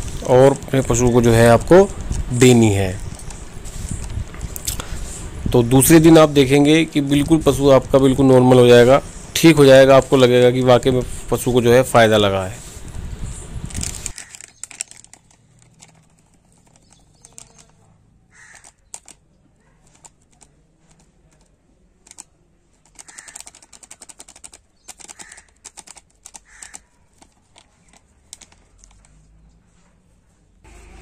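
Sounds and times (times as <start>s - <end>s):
powder ticking onto paper: 13.7s - 17.7s, 22.8s - 29.2s.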